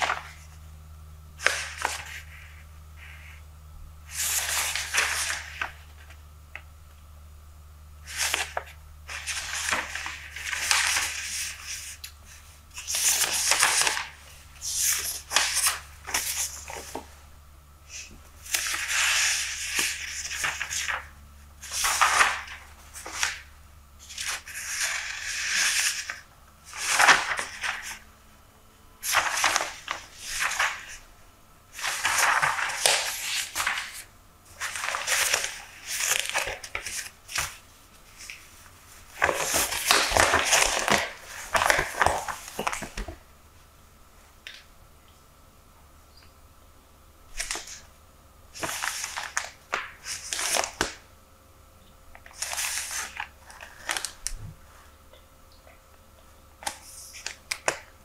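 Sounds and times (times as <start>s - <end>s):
newspaper pages rustling: 0.0s - 0.6s, 1.4s - 3.4s, 4.1s - 6.2s, 8.0s - 17.1s, 17.9s - 28.0s, 29.0s - 31.0s, 31.7s - 43.2s, 47.3s - 47.8s, 48.6s - 51.0s, 52.2s - 54.4s.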